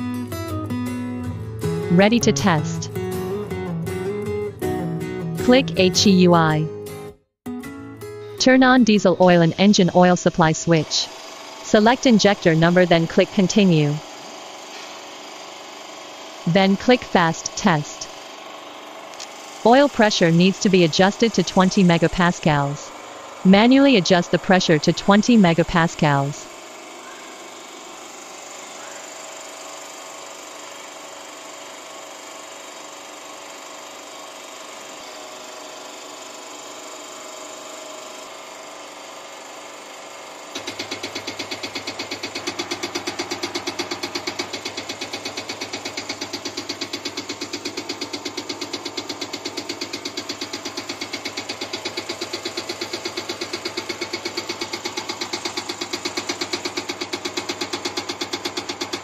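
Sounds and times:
steady hum: 8.4s - 15.0s, 19.1s - 26.5s
injector rapid ticking: 8.6s - 26.7s, 40.5s - 59.0s
test bench whirring: 8.6s - 30.1s, 32.6s - 59.0s.

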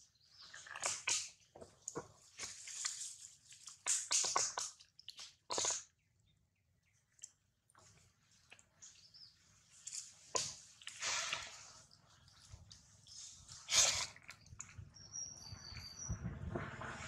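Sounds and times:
baby monkey suckling: 3.8s - 5.9s.

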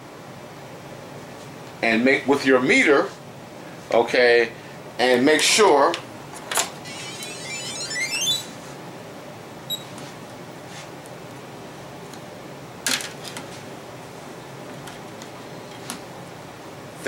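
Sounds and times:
multimeter beep: 9.7s - 9.9s.

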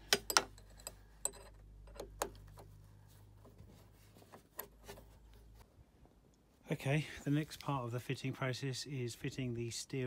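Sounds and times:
allen key clicking on metal screw: 0.2s - 2.4s.

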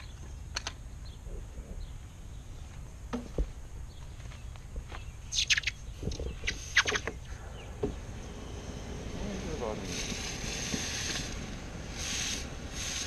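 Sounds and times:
hot metal sputtering in water: 9.4s - 13.0s.

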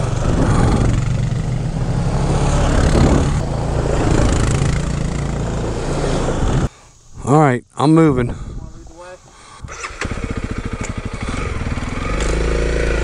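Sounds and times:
dirt bike and atv engines: 0.0s - 6.7s, 9.5s - 13.0s
motorcycle engine idling: 9.5s - 13.0s.

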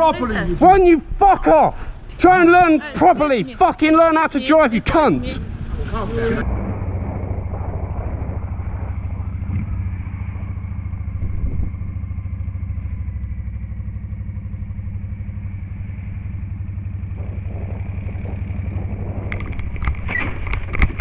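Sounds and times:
motorcycle engine running: 4.7s - 21.0s.

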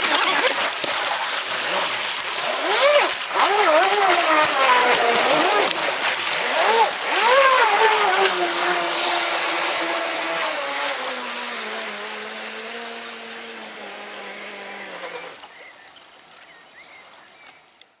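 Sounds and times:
electric motor whining: 2.5s - 15.4s
water spray hissing: 2.6s - 12.9s.

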